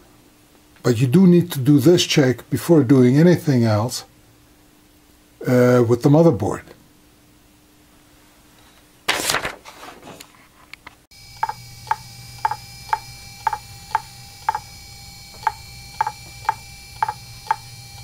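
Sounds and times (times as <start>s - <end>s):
faint steady whine: 10.5s - 18.0s
hard drive clicking: 11.3s - 18.0s.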